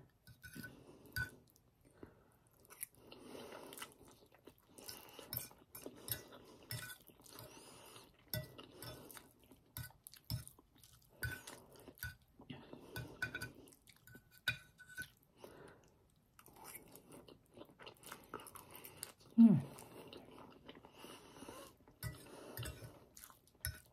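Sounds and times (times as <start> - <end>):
wet chewing sounds: 2.5 - 14.4, 15.1 - 23.9.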